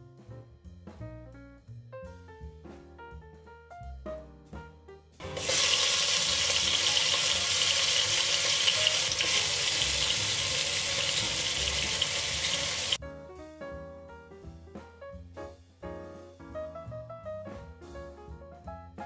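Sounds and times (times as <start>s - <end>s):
spices sizzling in hot oil: 5.2s - 13.0s.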